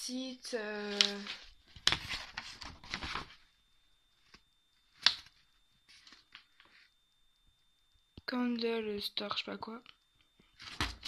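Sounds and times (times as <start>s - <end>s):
paper rustling: 0.7s - 3.4s, 5.0s - 6.9s, 10.6s - 11.0s
sharp paper snap: 5.0s - 5.3s.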